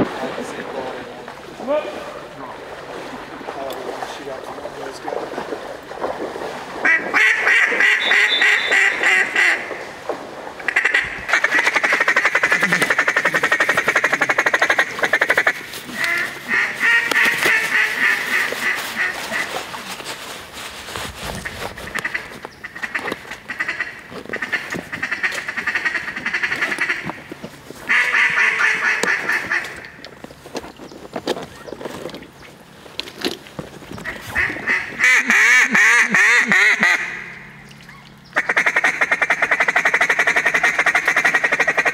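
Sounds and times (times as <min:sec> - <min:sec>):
duck calls quacking: 0:06.8 - 0:09.8, 0:10.6 - 0:19.8, 0:21.3 - 0:29.9, 0:34.0 - 0:37.5, 0:38.3 - 0:41.9.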